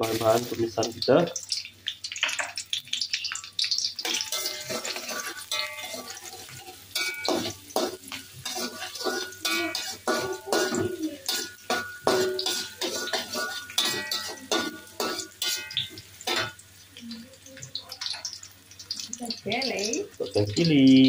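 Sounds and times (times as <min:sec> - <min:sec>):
oil sizzling: 0:00.0 - 0:21.0
metal spatula scraping wok: 0:03.8 - 0:16.6.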